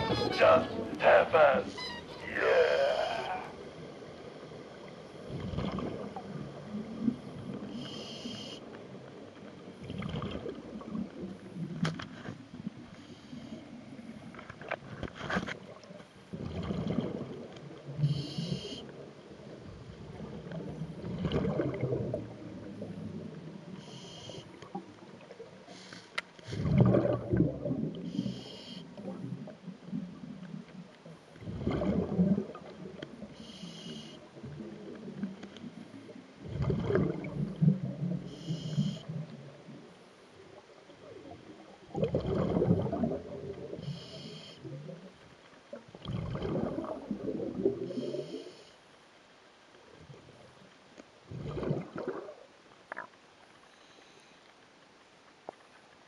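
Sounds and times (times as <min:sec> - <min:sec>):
exhaled bubbles gurgling underwater: 0:03.0 - 0:11.8, 0:15.6 - 0:25.7, 0:26.4 - 0:48.6, 0:49.8 - 0:53.2
regulator inhale hiss: 0:07.6 - 0:08.7, 0:18.0 - 0:18.9, 0:23.7 - 0:24.7, 0:25.7 - 0:26.7, 0:28.0 - 0:29.1, 0:33.3 - 0:34.3, 0:38.3 - 0:39.1, 0:43.7 - 0:44.7, 0:47.8 - 0:49.0, 0:53.7 - 0:54.5.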